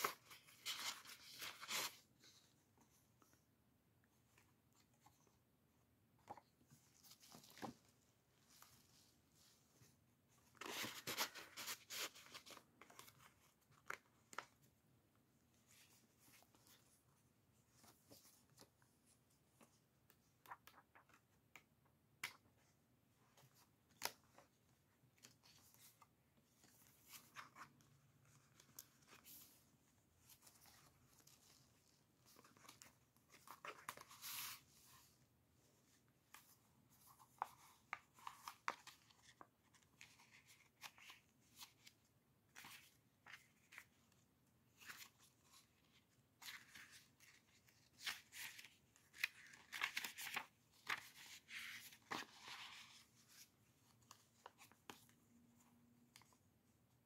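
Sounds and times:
paper pages rustling: 0:00.0 - 0:02.9, 0:06.2 - 0:14.7, 0:23.4 - 0:35.2, 0:35.8 - 0:56.4.

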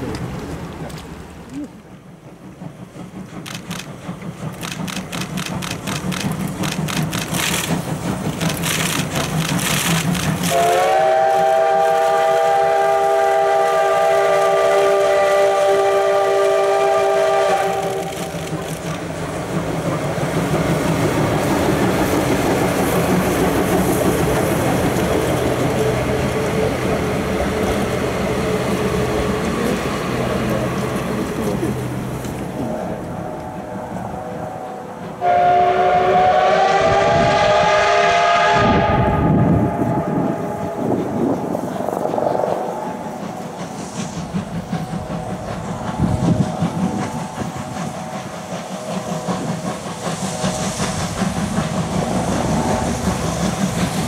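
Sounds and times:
steam locomotive exhaust beats: 0:00.0 - 0:54.0
train rolling past rumble: 0:00.0 - 0:54.0
steam whistle blast: 0:10.5 - 0:18.3, 0:35.2 - 0:41.0.

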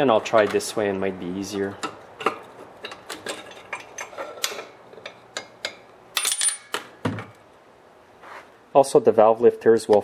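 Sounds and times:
metal parts clicking and clinking: 0:01.8 - 0:06.8.

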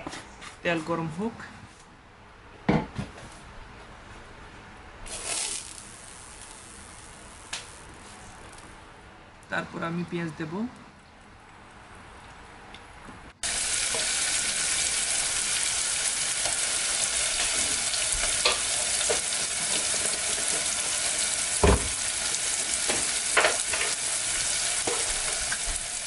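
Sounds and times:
onions sizzling in hot oil: 0:05.1 - 0:08.0, 0:13.4 - 0:26.0.

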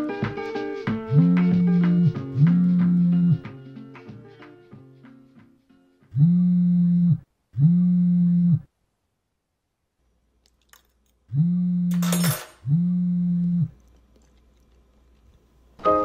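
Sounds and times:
smartphone vibrating on wooden table: 0:01.1 - 0:03.4, 0:06.1 - 0:08.7, 0:11.3 - 0:13.8.

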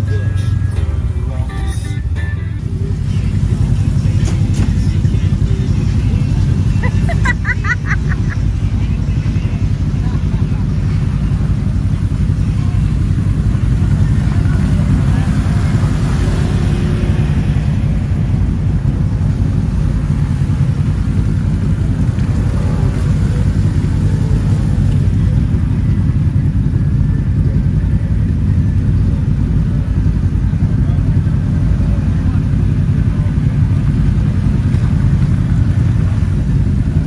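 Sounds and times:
vehicle engine rumbling: 0:00.0 - 0:37.0.

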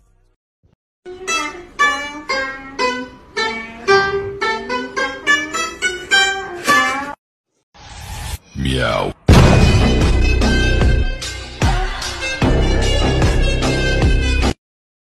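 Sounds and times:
pipa plucked melody: 0:01.1 - 0:07.1.

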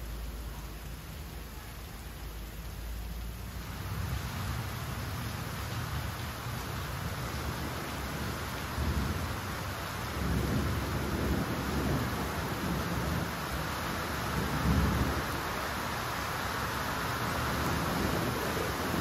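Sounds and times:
rain hissing: 0:00.0 - 0:19.0
thunder rumbling: 0:03.8 - 0:16.2, 0:17.0 - 0:19.0.

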